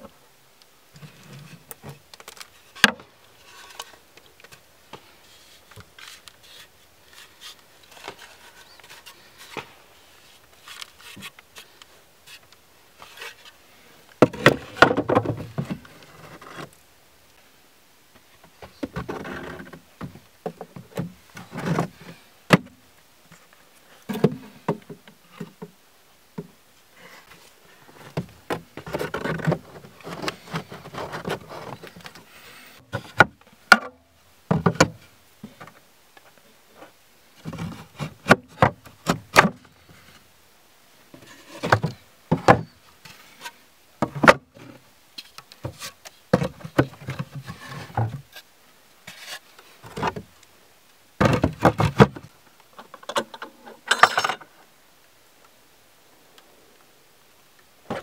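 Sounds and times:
wooden frames scraping: 5.3s - 11.7s, 27.3s - 33.4s, 41.2s - 44.8s, 51.2s - 52.3s.

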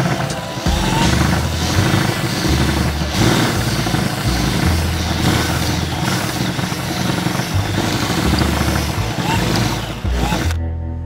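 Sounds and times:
power drill boring into plastic: 0.0s - 10.6s.

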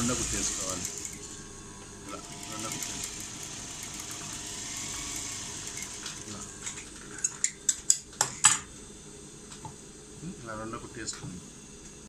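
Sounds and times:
sewing machine running: 0.0s - 1.3s, 2.1s - 6.4s.

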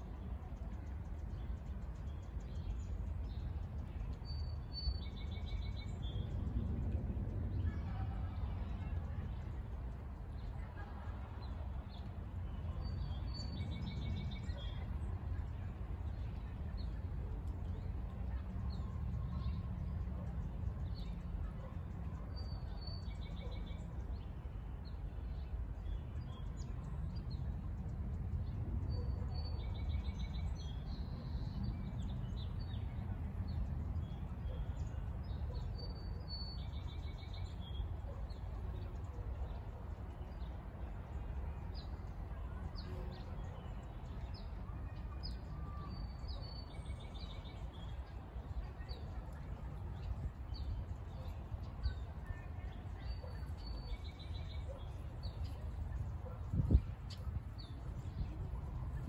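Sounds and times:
light rain on a pond: 0.0s - 6.6s, 7.2s - 56.0s
steady low rumble: 0.0s - 22.8s.

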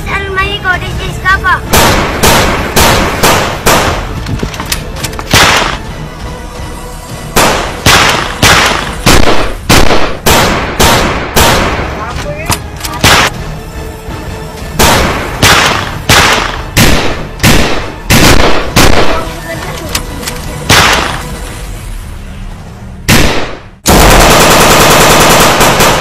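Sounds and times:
single gunshots: 1.7s - 4.2s, 5.3s - 5.8s, 7.4s - 12.0s, 13.0s - 13.4s, 14.8s - 19.2s, 20.7s - 21.2s, 23.1s - 26.0s.

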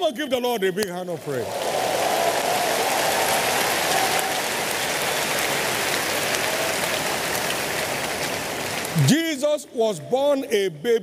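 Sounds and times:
crowd applauding: 1.2s - 9.1s.

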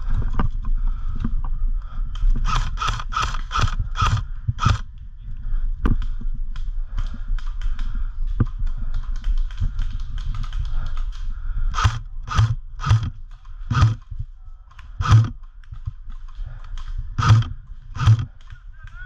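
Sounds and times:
small clicks: 2.1s - 5.1s, 6.0s - 19.0s
airsoft rifle shots: 2.4s - 4.8s, 11.7s - 13.1s, 13.7s - 14.1s, 15.0s - 15.4s, 17.2s - 18.4s.

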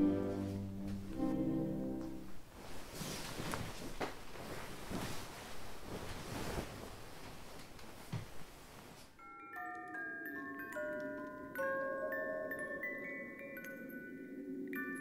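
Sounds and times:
bedding rustling: 2.1s - 9.2s
chime-like bell music: 9.2s - 15.0s.

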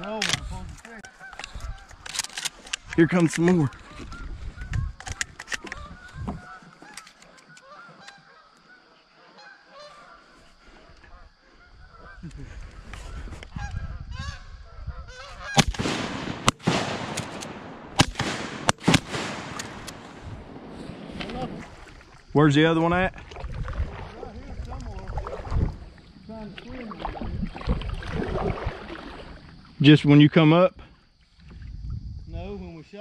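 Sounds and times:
geese honking: 1.0s - 2.0s, 3.7s - 12.9s, 13.6s - 15.6s
shotgun shots: 15.6s - 21.0s.

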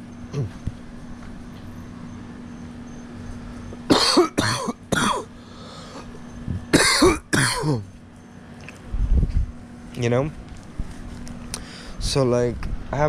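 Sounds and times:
person coughing: 3.9s - 5.3s, 6.7s - 7.9s.

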